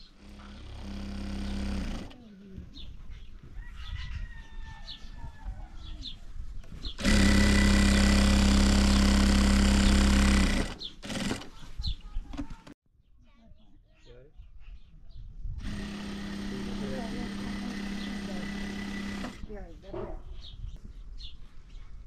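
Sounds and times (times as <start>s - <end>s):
machine humming: 0.0s - 2.2s, 7.0s - 11.4s, 15.6s - 19.4s
faint bird chirps: 13.0s - 15.4s.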